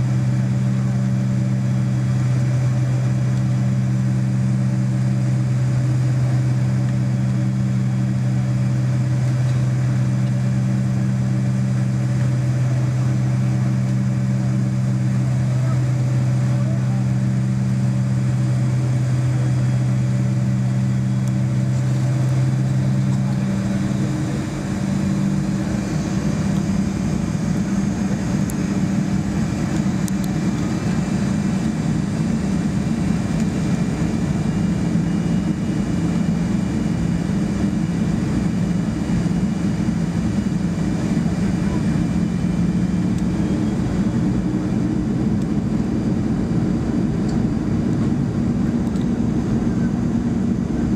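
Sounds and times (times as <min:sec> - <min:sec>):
jet engines humming in cabin: 0:00.0 - 0:50.9.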